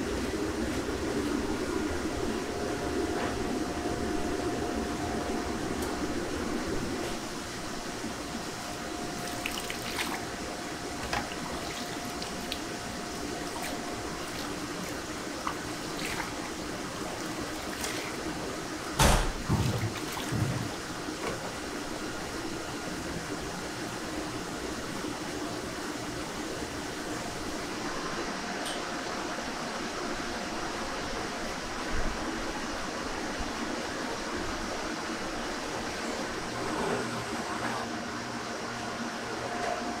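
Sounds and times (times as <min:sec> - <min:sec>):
kitchen fan hum: 0:00.0 - 0:40.0
liquid splashing and trickling: 0:09.1 - 0:10.4, 0:11.0 - 0:18.5, 0:19.4 - 0:20.9.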